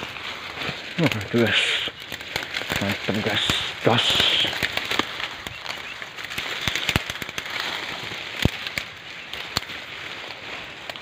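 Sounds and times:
twigs crackling underfoot: 0.0s - 11.0s.

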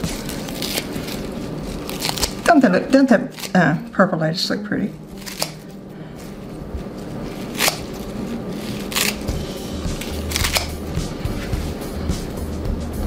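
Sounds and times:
scissors snipping lettuce: 0.0s - 3.6s, 5.2s - 5.6s, 7.2s - 10.8s.

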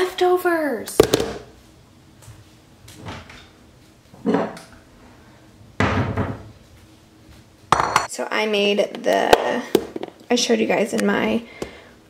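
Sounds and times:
cabinet doors and drawers knocking: 5.8s - 6.5s.

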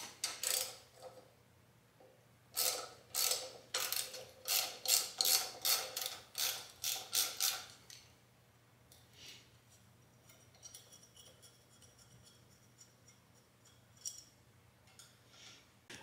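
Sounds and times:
ratchet wrench clicking: 0.2s - 0.8s, 2.6s - 7.8s.

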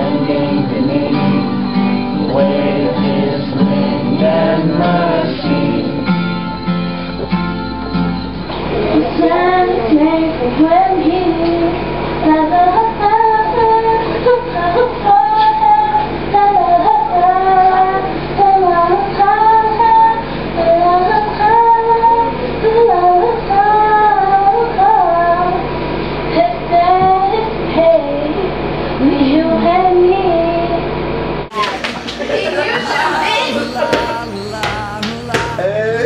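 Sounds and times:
young female voices singing: 0.0s - 6.0s, 8.8s - 25.6s, 31.5s - 36.0s.

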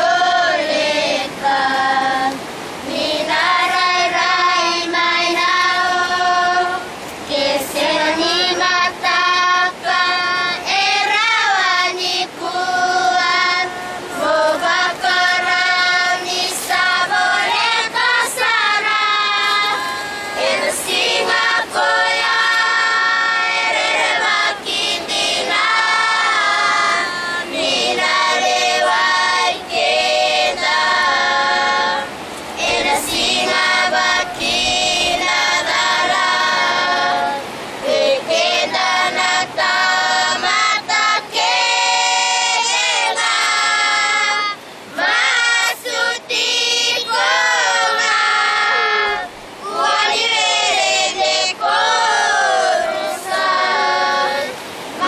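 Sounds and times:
woman singing: 0.0s - 54.6s
children singing unaccompanied: 0.0s - 55.0s.

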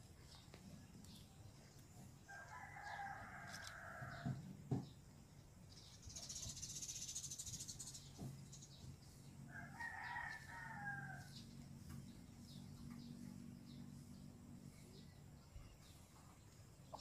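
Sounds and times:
faint rooster crowing: 2.1s - 4.5s, 9.5s - 11.6s.

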